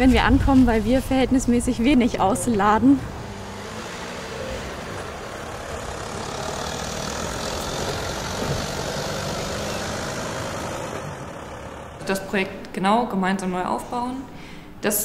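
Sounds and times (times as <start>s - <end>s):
vehicle engine idling: 0.7s - 12.5s.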